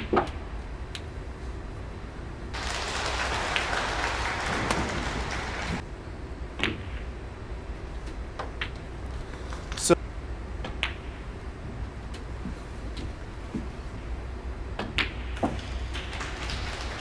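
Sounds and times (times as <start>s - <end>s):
audience applause: 2.5s - 5.8s, 15.6s - 17.0s
snooker balls clicking: 14.8s - 16.6s.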